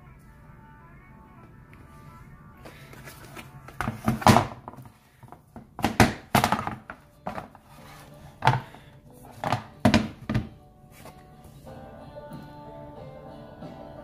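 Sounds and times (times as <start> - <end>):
plastic crackling and knocking: 3.0 - 7.7, 8.4 - 10.6.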